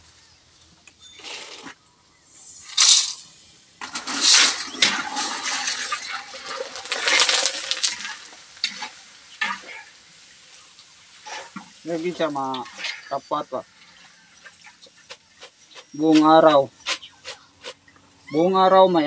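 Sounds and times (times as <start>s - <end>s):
pasta crackling in hot oil: 0.0s - 16.0s
metal strainer scraping pan: 3.8s - 9.8s.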